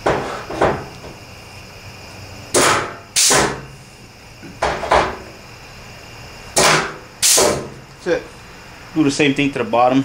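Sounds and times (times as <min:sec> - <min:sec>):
air hiss: 0:01.3 - 0:04.5, 0:05.2 - 0:09.1
pneumatic punch snapping: 0:02.5 - 0:03.8, 0:06.6 - 0:07.8.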